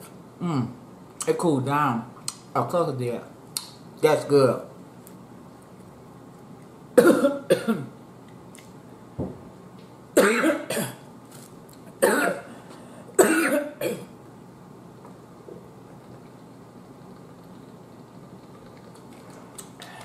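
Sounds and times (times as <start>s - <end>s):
woman coughing: 7.0s - 7.9s, 10.2s - 11.0s, 12.0s - 12.5s, 13.2s - 14.1s.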